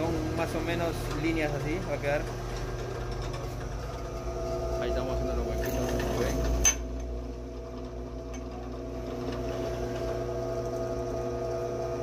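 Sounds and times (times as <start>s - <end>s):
drill press drilling into metal: 0.0s - 7.2s.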